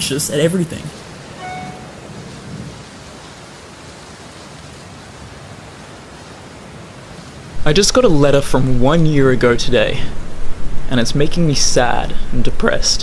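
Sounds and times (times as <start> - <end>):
steady rain-like noise: 0.0 - 13.0
short pitched tone: 1.4 - 2.0.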